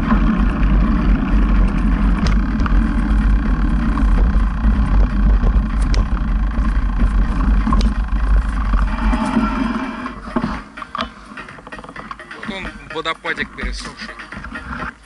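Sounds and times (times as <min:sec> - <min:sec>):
rumbling ride noise: 0:00.0 - 0:15.0
sharp clicks and knocks: 0:01.4 - 0:08.9.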